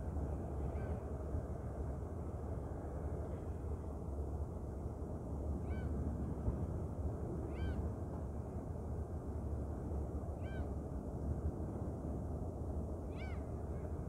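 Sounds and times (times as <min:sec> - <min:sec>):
ferry engine low rumble: 0:00.0 - 0:14.0.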